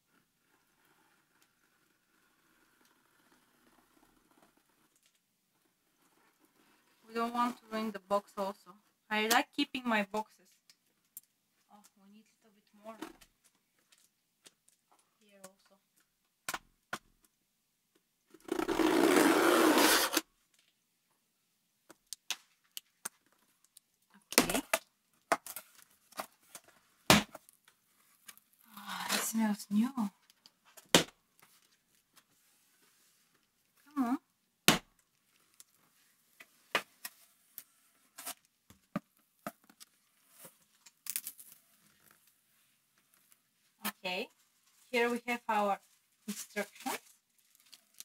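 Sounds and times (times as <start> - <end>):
packing tape ripped off cardboard: 18.3 - 20.3, 36.8 - 38.6, 46.3 - 48.0.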